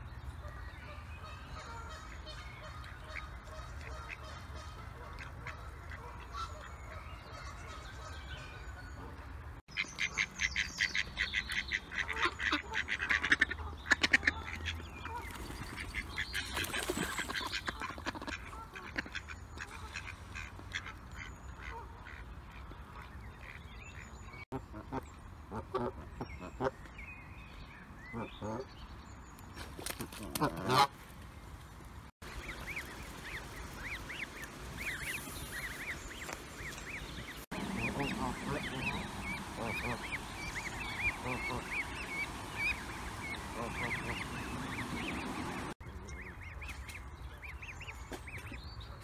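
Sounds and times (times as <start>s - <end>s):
ducks quacking: 0.8s - 9.1s, 9.7s - 26.8s, 30.2s - 30.9s, 32.2s - 46.8s
goose honks: 37.6s - 40.2s, 40.8s - 42.0s.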